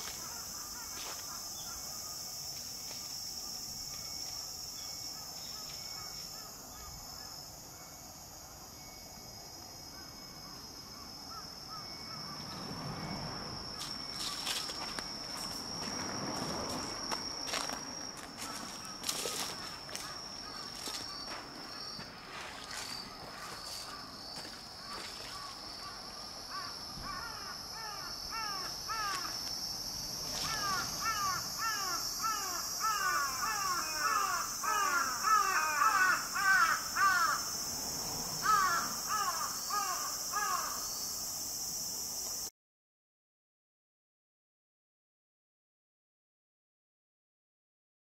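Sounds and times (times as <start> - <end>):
crows cawing: 0.0 - 2.2, 18.4 - 18.9, 19.6 - 21.2, 24.8 - 29.4, 30.4 - 37.6, 38.4 - 40.8
high-pitched insect drone: 0.0 - 42.5
footsteps on dirt path: 0.9 - 1.3, 13.8 - 25.5.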